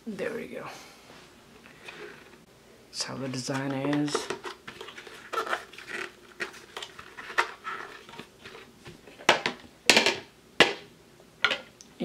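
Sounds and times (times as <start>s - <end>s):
plastic parts clicking and scraping: 3.3s - 10.1s.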